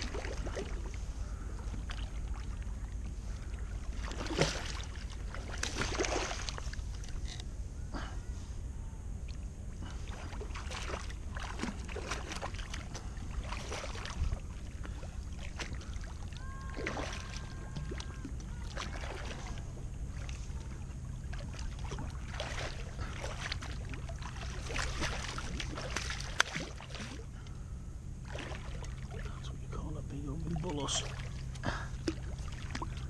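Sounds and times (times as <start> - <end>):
steady low rumble: 0.0 - 33.0
fish splashing at water surface: 10.1 - 20.3, 21.3 - 27.2, 28.2 - 29.3.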